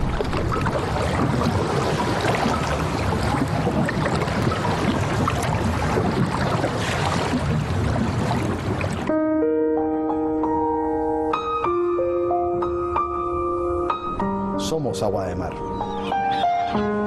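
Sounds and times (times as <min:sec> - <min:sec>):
sea water rushing and splashing: 0:00.0 - 0:09.2.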